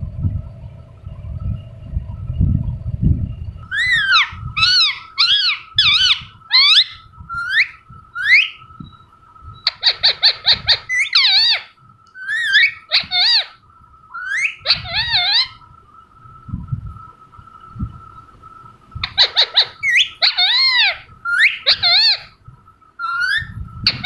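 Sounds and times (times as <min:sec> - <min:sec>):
parrot chattering: 0:03.7 - 0:08.6, 0:09.6 - 0:15.6, 0:19.0 - 0:22.4, 0:23.0 - 0:24.0
parrot squawking: 0:03.7 - 0:08.6, 0:09.6 - 0:15.6, 0:19.0 - 0:22.4, 0:23.0 - 0:24.0.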